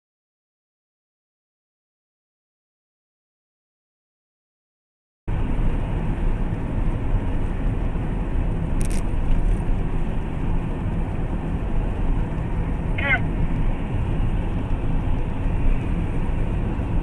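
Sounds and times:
car road and engine noise: 5.3 - 17.0.

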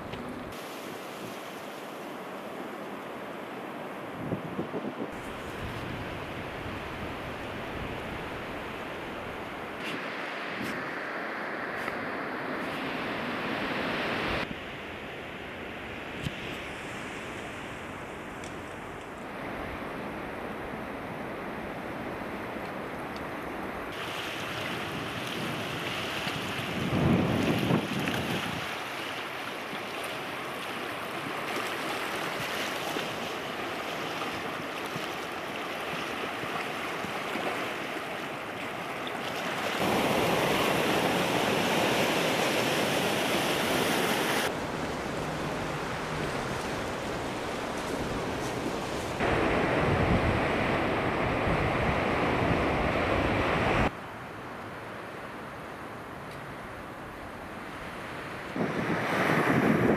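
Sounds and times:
small waves washing on pebbles: 23.9 - 49.8
wind buffeting microphone: 24.4 - 29.0, 39.8 - 53.9, 58.4 - 59.9.

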